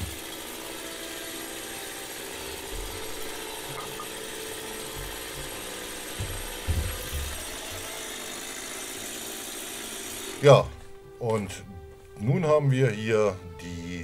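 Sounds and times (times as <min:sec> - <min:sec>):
dull wood knocks: 0:02.6 - 0:08.1.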